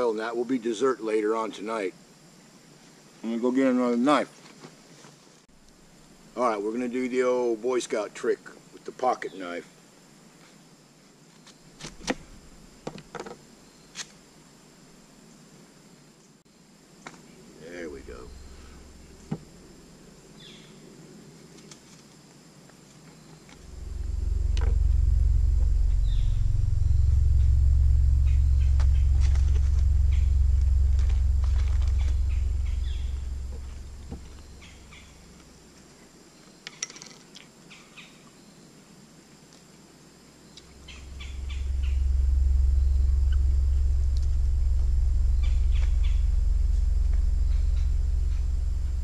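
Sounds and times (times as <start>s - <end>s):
deep low rumble: 11.7s - 12.9s, 17.8s - 20.2s, 23.6s - 35.7s, 40.7s - 49.0s
faint bird chirps: 23.3s - 35.4s, 40.5s - 49.0s.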